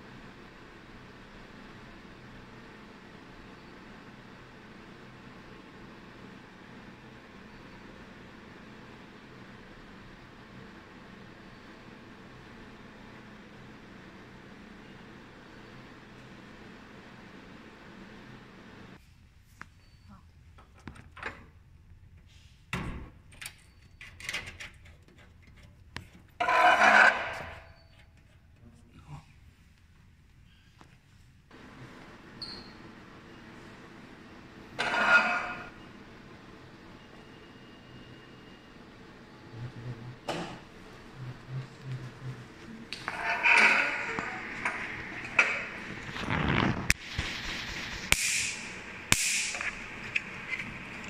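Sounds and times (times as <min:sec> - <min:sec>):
paper sheet rustling: 0:45.0 - 0:48.1
laser snaps with hiss: 0:46.9 - 0:49.9.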